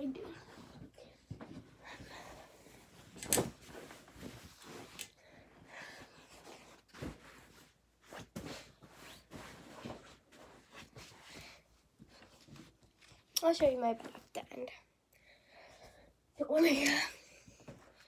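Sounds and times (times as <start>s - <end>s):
bedclothes rustling: 0.0s - 14.3s.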